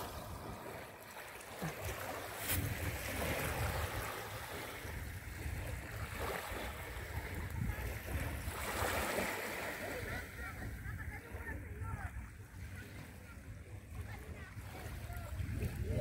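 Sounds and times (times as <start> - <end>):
small waves lapping on shore: 0.0 - 16.0
wind buffeting microphone: 2.4 - 9.1, 14.0 - 16.0.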